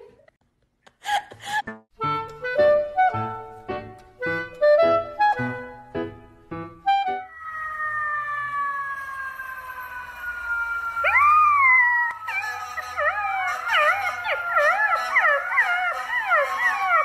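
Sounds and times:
long high tone sliding down: 7.3 - 14.9
puppy howling: 7.3 - 17.0.

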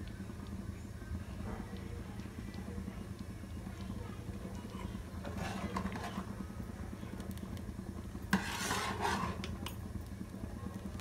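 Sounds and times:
steady low hum: 0.0 - 11.0
metal ladle scraping a pot: 5.2 - 6.3, 8.3 - 9.5.

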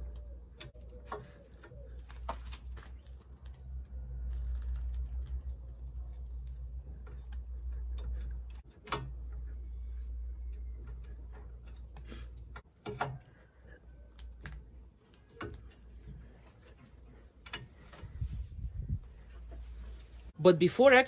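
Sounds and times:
low steady hum: 0.0 - 20.4.

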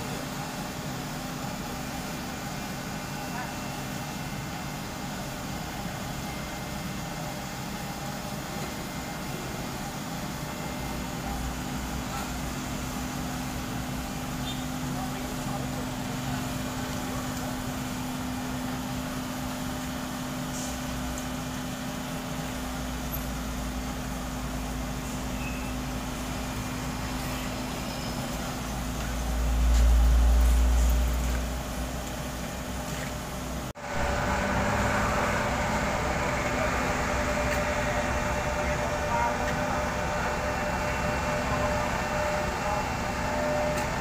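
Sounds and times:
close busy engine: 0.0 - 44.0
diesel machinery engines humming: 0.0 - 44.0
truck engine deep rumble: 0.0 - 44.0.

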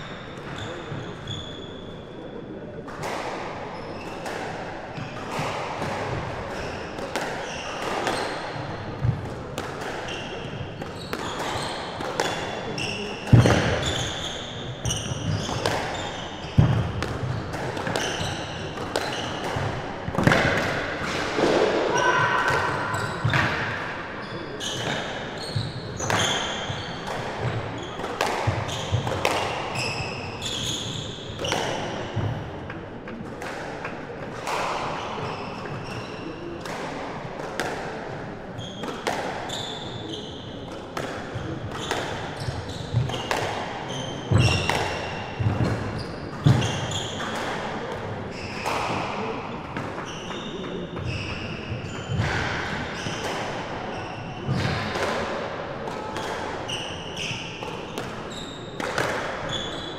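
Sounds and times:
shoe squeaks: 0.0 - 2.2, 3.7 - 4.2, 10.1 - 11.9, 12.7 - 16.6, 17.9 - 19.4, 24.2 - 27.1, 29.7 - 31.6, 35.2 - 36.5, 39.5 - 40.6, 41.8 - 45.2, 46.0 - 47.2, 50.0 - 52.2, 53.9 - 54.5, 56.7 - 58.8, 59.5 - 59.9
squash ball striking rackets and walls: 2.8 - 59.9.

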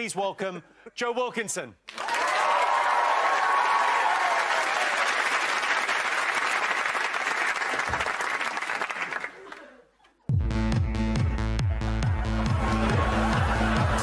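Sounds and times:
audience cheering: 1.9 - 9.3, 12.1 - 14.0
audience applauding: 1.9 - 9.8, 12.3 - 14.0.

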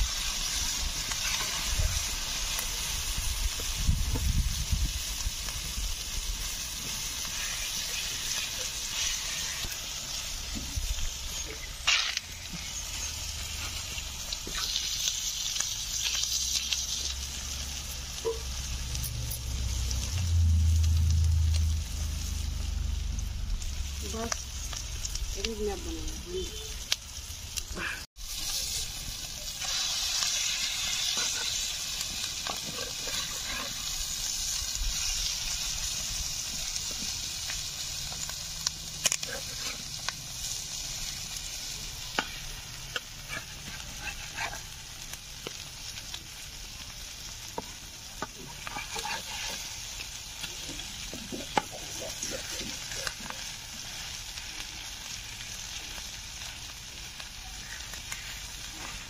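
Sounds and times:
fish roe sizzling in oil: 0.0 - 59.0
metal spatula scraping a pan: 29.6 - 34.2, 39.2 - 40.0, 42.2 - 44.8, 48.4 - 49.9.

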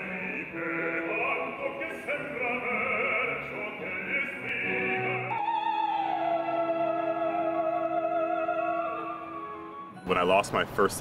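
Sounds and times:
man singing opera: 0.0 - 9.0
orchestra playing: 4.5 - 10.4.

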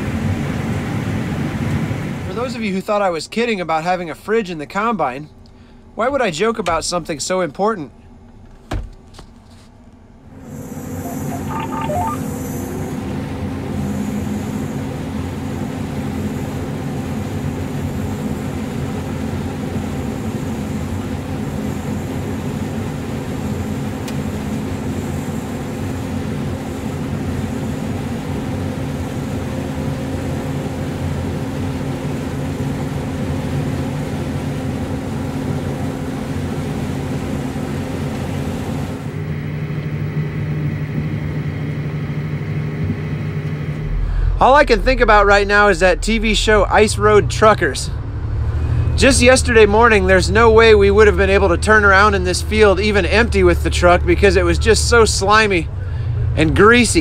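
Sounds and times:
combine engine droning: 10.2 - 57.0
vehicle cab hum: 41.6 - 57.0.

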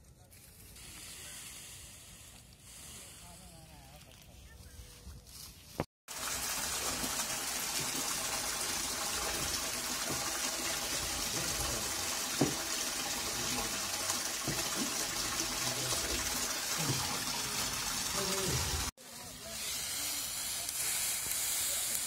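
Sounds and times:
juice pouring and splashing into pan: 6.1 - 18.9.

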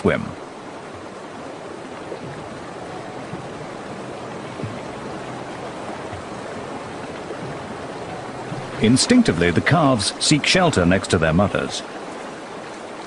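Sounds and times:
river water rushing: 0.0 - 13.0
faint low thump: 2.2 - 8.7.

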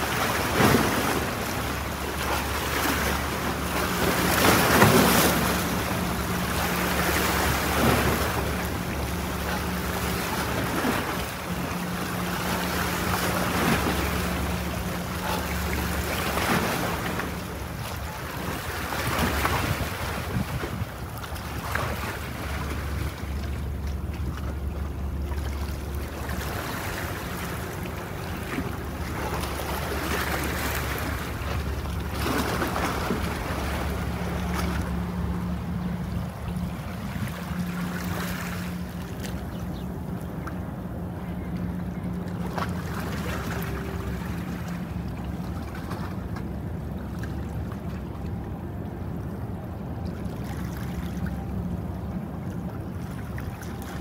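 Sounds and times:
boat engine rumble: 0.0 - 54.0
droning hum: 0.0 - 54.0
wind buffeting microphone: 19.1 - 21.6.

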